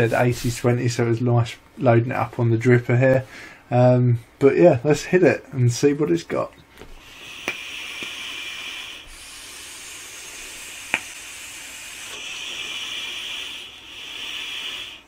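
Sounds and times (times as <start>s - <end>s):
hiss of vaping and exhaling: 7.0s - 15.0s.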